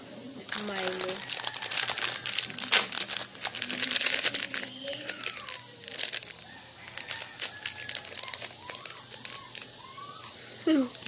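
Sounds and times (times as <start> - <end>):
plastic sachet crinkling: 0.5 - 11.0.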